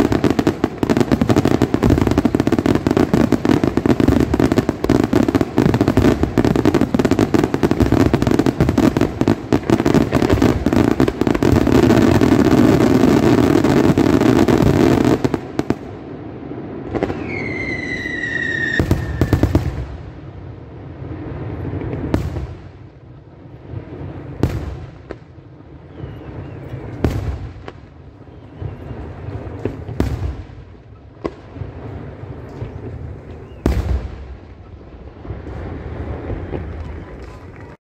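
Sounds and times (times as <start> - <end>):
fireworks bursts and crackle: 0.0 - 37.8
single firework bangs: 16.9 - 20.0, 25.9 - 37.8
falling whistle: 17.1 - 19.4, 25.9 - 26.8, 28.3 - 29.2.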